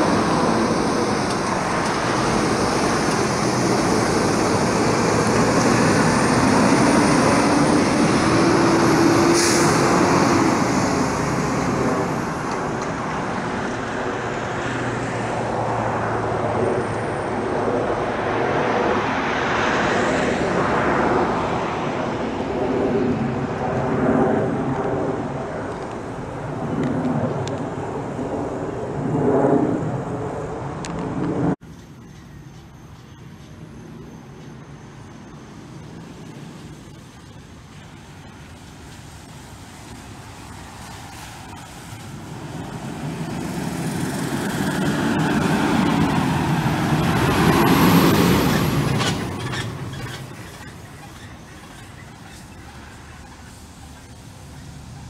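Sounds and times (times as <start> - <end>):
fire engine diesel engine passing: 0.0 - 30.8, 31.7 - 55.0
truck engine cutting off: 41.1 - 52.7.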